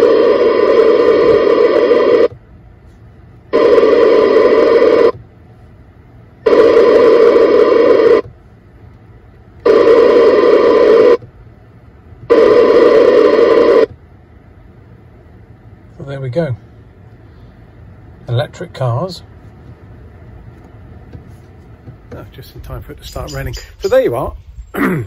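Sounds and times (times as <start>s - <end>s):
radio interference buzz: 0.0s - 2.4s, 3.5s - 5.2s, 6.4s - 8.3s, 9.6s - 11.3s, 12.2s - 14.0s.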